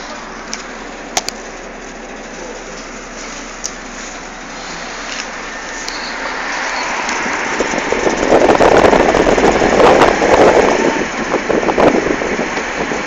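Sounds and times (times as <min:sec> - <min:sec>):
tram wheels rattling on rails: 0:00.0 - 0:13.0.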